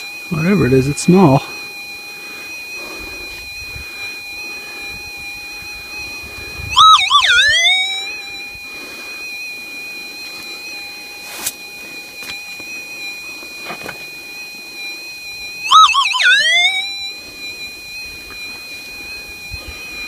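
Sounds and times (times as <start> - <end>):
metal detector threshold tone: 0.3 - 1.6, 5.0 - 8.6, 15.6 - 17.2
warbling detector target signal: 4.8 - 8.6, 15.6 - 17.2.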